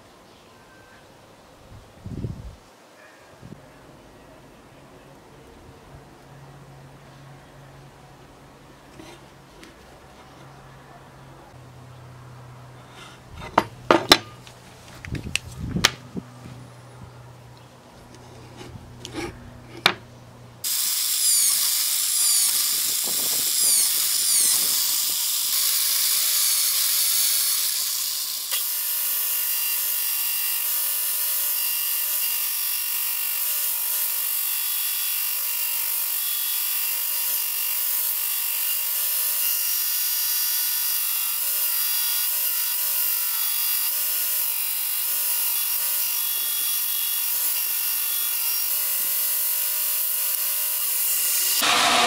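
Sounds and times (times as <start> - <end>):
belt grinder grinding wood: 18.2 - 20.0, 20.6 - 52.0.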